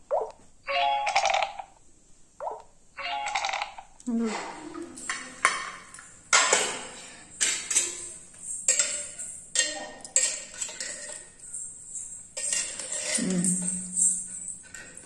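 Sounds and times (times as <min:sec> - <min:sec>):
metal spoon clinking in a pot: 0:05.0 - 0:15.0.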